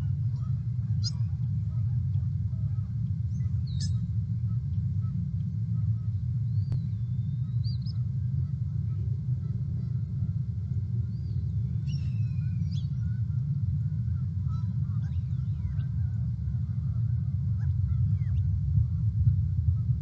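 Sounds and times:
steady low rumble: 0.0s - 20.0s
wild bird chirps and calls: 0.8s - 1.4s, 3.3s - 4.1s, 6.5s - 8.0s, 11.1s - 13.1s.

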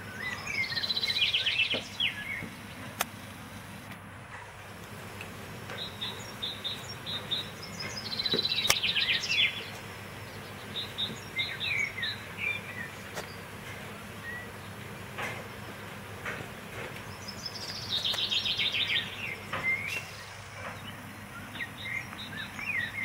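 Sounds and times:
low background hum: 0.0s - 23.0s
small birds chirping: 0.0s - 23.0s
sharp clicks: 8.3s - 9.9s, 16.9s - 18.4s.

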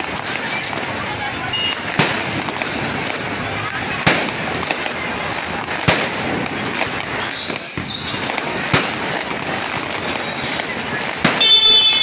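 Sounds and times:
firework bangs: 0.0s - 12.0s
rocket whistle: 11.2s - 12.0s.

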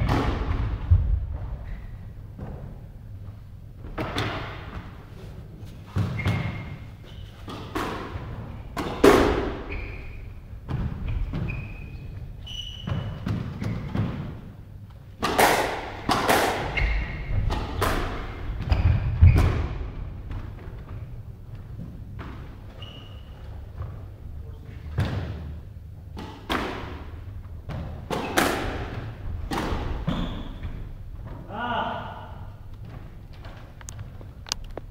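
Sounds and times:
squash ball hits echoing: 0.0s - 1.3s, 7.4s - 9.7s, 15.2s - 20.6s, 24.9s - 31.6s
sneakers squeaking on floor: 1.6s - 2.7s, 5.6s - 14.3s, 16.5s - 25.6s, 27.5s - 31.4s.

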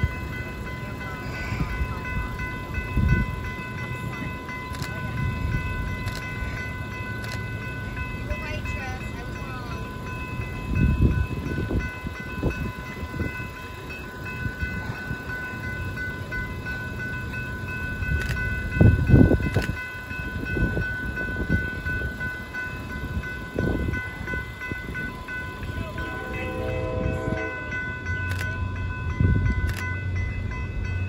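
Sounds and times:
crossing warning bells ringing: 0.0s - 31.0s
low rumble: 24.8s - 30.9s.

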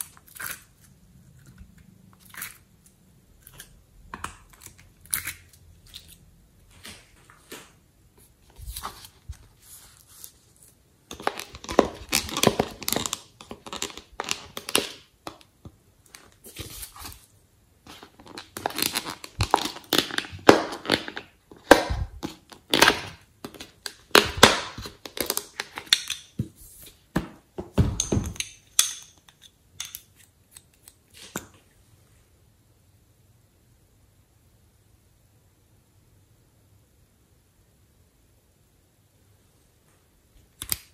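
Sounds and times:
plastic packaging crinkling and clicking: 11.1s - 15.5s, 17.9s - 26.4s.

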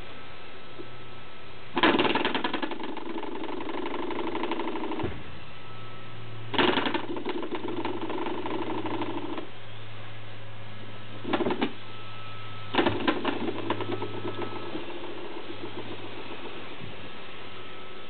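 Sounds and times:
door stopper spring boinging: 12.7s - 17.0s.

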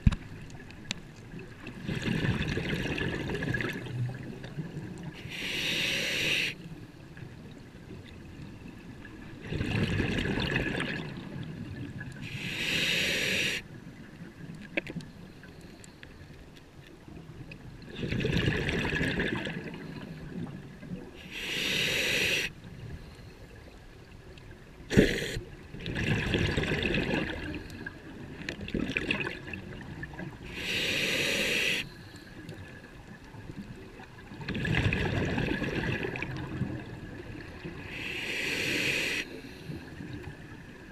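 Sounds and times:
bubbling of exhaled bubbles: 1.7s - 4.9s, 9.4s - 11.4s, 17.9s - 19.8s, 24.9s - 27.6s, 34.4s - 37.4s
regulator inhale hiss: 5.2s - 6.7s, 12.2s - 13.7s, 21.2s - 23.5s, 24.9s - 25.4s, 30.5s - 32.4s, 37.8s - 39.9s.

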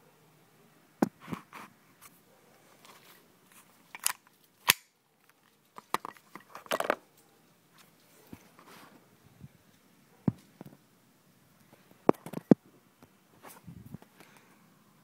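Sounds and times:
rustling: 1.2s - 9.8s.

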